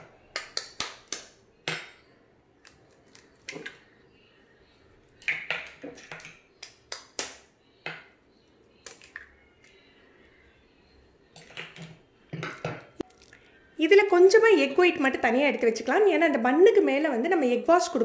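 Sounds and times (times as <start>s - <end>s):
eggshells tapping and cracking: 5.2s - 7.5s, 8.8s - 9.8s, 13.0s - 13.4s.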